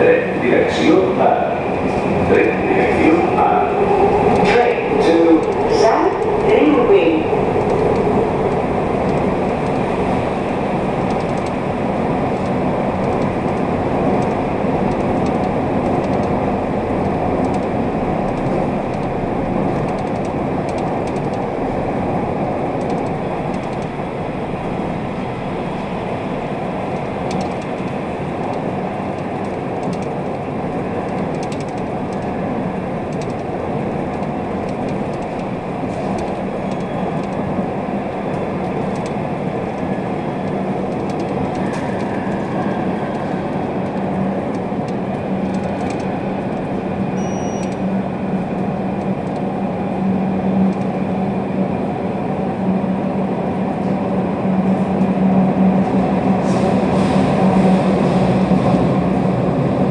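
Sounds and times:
train rumbling on rails: 0.0 - 59.9
faint clicks: 27.0 - 30.2.

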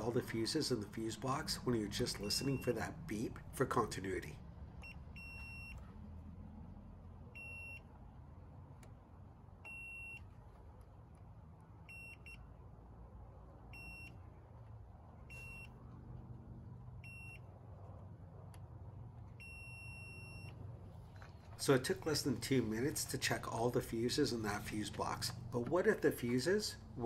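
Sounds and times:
multimeter continuity beeps: 1.9 - 3.1, 4.8 - 5.8, 7.4 - 7.9, 9.6 - 10.3, 11.8 - 12.5, 13.7 - 14.3, 15.3 - 15.8, 17.0 - 17.5, 19.4 - 20.6.

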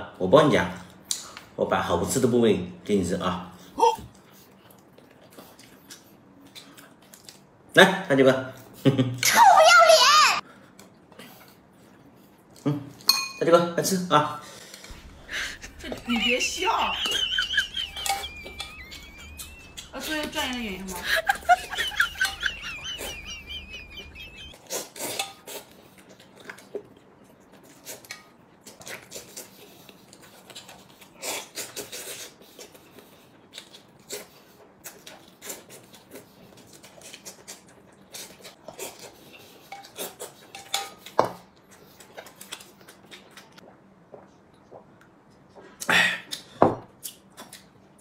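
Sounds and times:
chewing: 4.2 - 7.5, 24.6 - 47.8.

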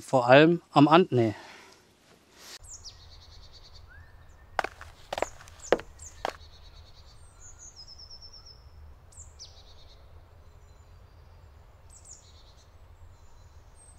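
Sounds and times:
birds chirping: 2.6 - 13.9.

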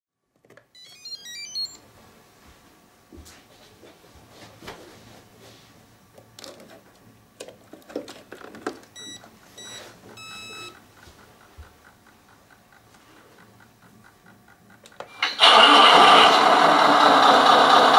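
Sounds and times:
long electronic tone: 0.8 - 1.8
short electronic beeps: 0.8 - 1.8, 9.0 - 10.8
faint ticking: 10.6 - 15.0.

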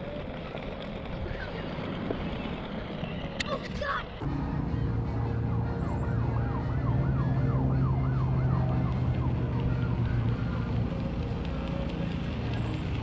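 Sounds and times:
emergency siren yelping: 4.2 - 12.2.

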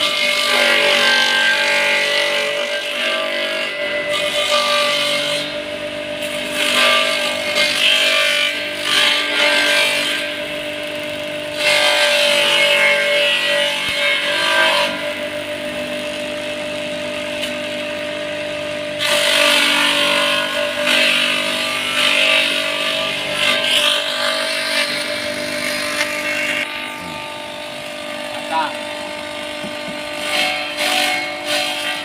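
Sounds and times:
leaves being shredded: 18.9 - 32.0
chopper motor humming: 22.4 - 31.5.

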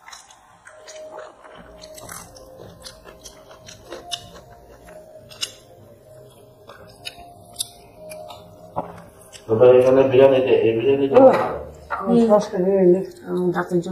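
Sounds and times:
people chewing food: 0.0 - 10.3.

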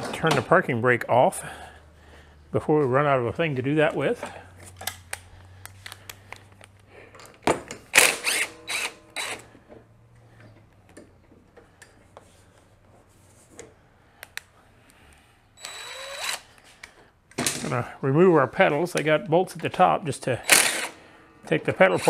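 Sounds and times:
clicks and rattles of parts: 4.6 - 8.5
cordless drill running: 7.9 - 9.5, 15.6 - 16.6, 20.4 - 22.0.

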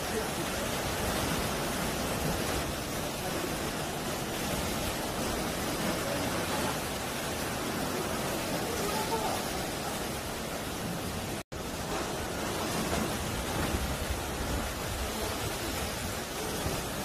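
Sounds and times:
waves breaking on rocky shore: 0.0 - 17.0.

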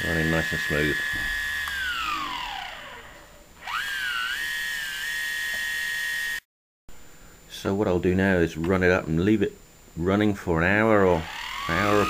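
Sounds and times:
electric motor whine: 0.0 - 6.5, 11.0 - 12.0.

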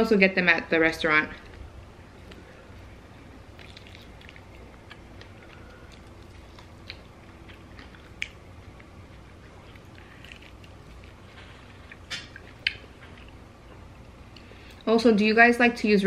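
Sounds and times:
person chewing: 3.2 - 13.5
wet mouth clicks: 3.5 - 11.2.

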